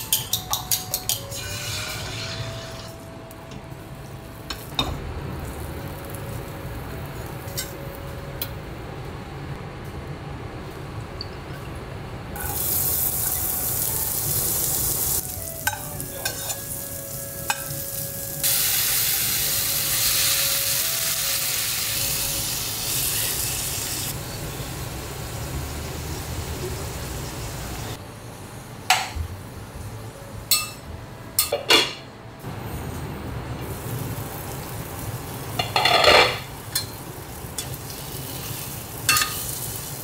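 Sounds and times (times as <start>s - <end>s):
tomatoes sizzling in hot oil: 12.4s - 28.0s, 33.6s - 40.0s.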